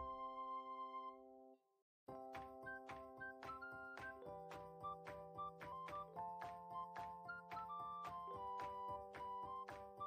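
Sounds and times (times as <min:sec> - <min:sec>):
background music: 0:02.1 - 0:10.0.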